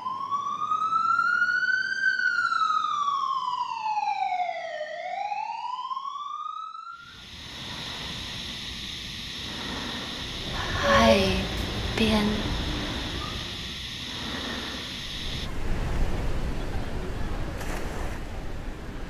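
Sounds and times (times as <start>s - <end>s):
emergency siren wailing: 0.0s - 7.3s
steady rushing noise: 7.1s - 19.0s.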